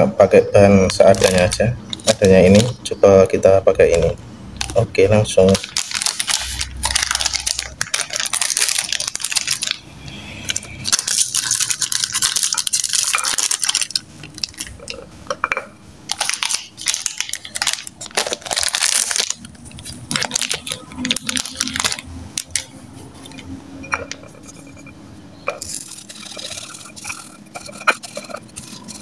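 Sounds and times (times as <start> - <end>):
biscuits crunching: 0.8 - 2.8, 3.8 - 9.8, 10.5 - 15.1, 16.1 - 22.7, 25.5 - 29.0
plastic packet crinkling: 0.8 - 9.8, 10.4 - 15.0, 16.1 - 23.4, 25.5 - 29.0.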